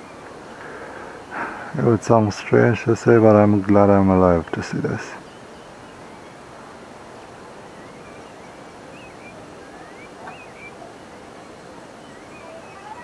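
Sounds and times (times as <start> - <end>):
wind-like hiss: 0.0 - 13.0
faint high chirps: 7.7 - 13.0.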